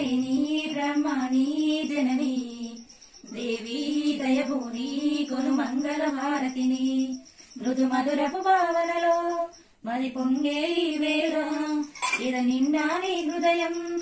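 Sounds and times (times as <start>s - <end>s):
woman singing devotional song: 0.0s - 14.0s.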